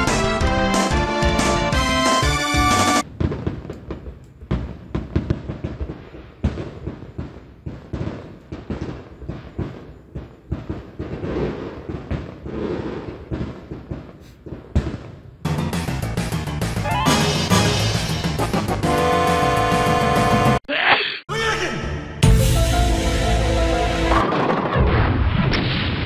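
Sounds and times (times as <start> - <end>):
fireworks bangs and pops: 0.7 - 18.5
fireworks crackling: 1.8 - 15.8.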